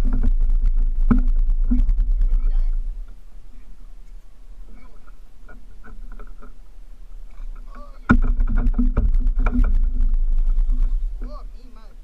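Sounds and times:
deep rumble: 0.0 - 3.9, 7.2 - 12.0.

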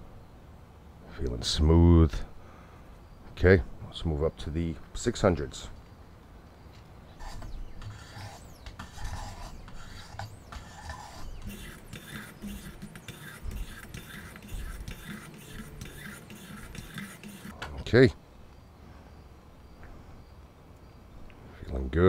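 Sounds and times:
sharpening stone scraping axe: 7.2 - 17.6.

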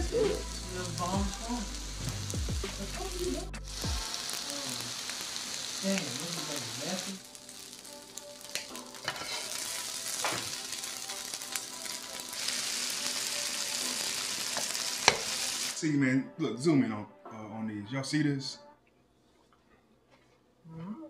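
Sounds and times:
food sizzling on griddle: 0.0 - 15.8
metal spatula scraping griddle: 9.0 - 10.6.

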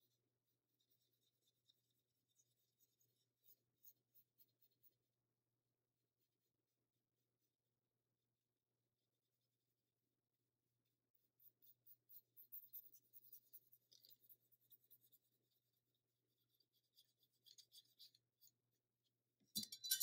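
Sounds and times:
brush scratching on paper: 0.0 - 5.2, 10.9 - 19.1
scratchy scrubbing: 11.1 - 18.8.

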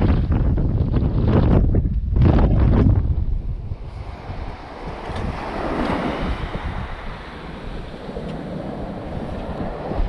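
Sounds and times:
wind buffeting microphone: 0.0 - 10.0
small waves washing onto beach: 3.7 - 10.0.

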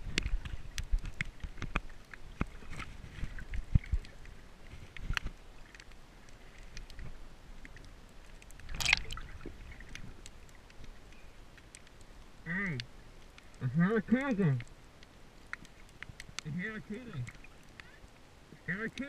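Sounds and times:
water swish: 0.0 - 13.6, 14.2 - 18.6
muffled underwater movement: 0.0 - 19.0.

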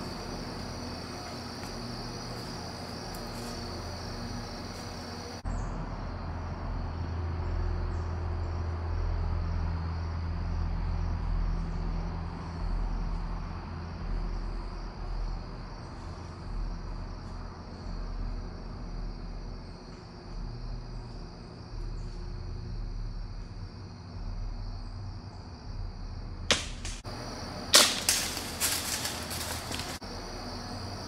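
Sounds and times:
insects chirring: 0.0 - 31.0.

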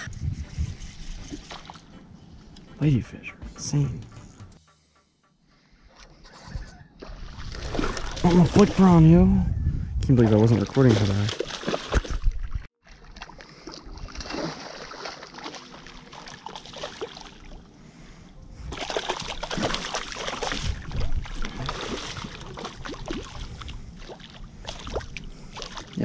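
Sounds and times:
fish thrashing in water: 7.0 - 8.8, 10.6 - 17.6, 18.7 - 26.0.

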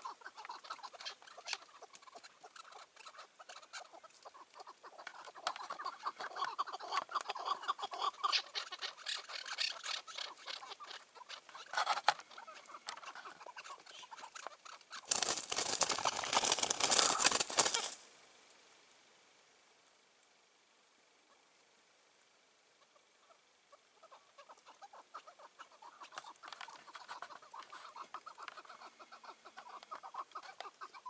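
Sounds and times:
partridge clucking calls: 0.0 - 18.0, 22.8 - 31.0
bird wings flapping: 14.3 - 18.1.

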